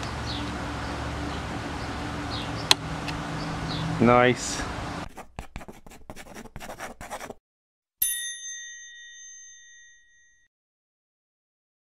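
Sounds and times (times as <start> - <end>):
stick scratching in flour: 5.0 - 7.4
bright bell ding: 8.0 - 10.5.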